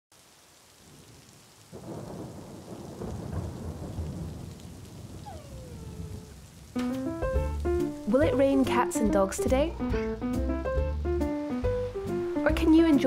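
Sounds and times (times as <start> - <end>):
rain falling: 0.1 - 13.0
thunder rumbling: 0.8 - 9.8.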